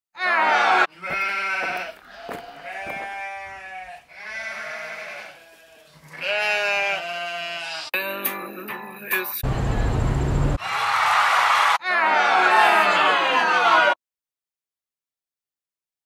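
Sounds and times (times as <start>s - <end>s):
sheep bleating: 0.2s - 8.0s.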